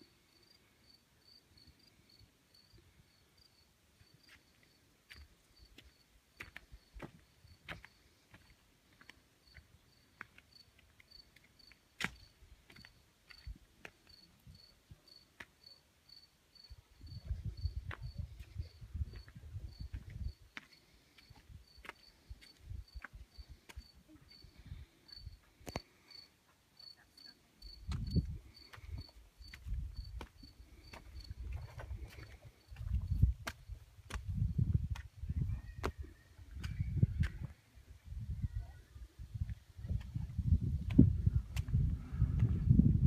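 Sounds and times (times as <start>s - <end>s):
cricket chirping: 0.1s - 8.0s, 9.4s - 33.8s.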